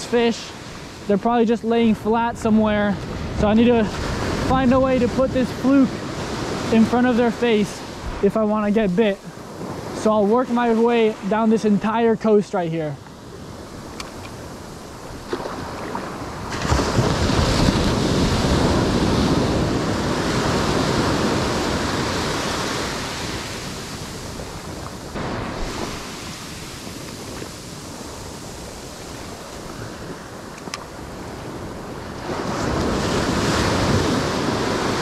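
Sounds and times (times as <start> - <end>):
ocean surf washing up beach: 0.0 - 35.0.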